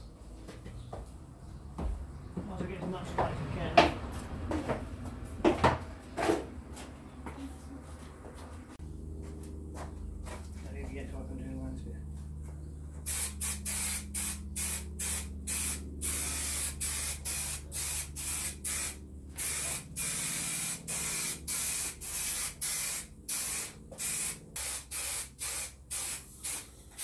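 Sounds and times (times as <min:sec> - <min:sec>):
aerosol can hissing: 0:13.1 - 0:27.0.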